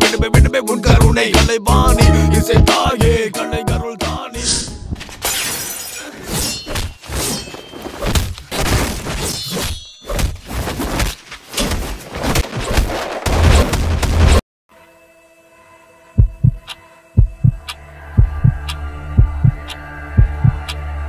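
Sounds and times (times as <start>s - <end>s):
glass bottle smashing: 5.2s - 8.0s.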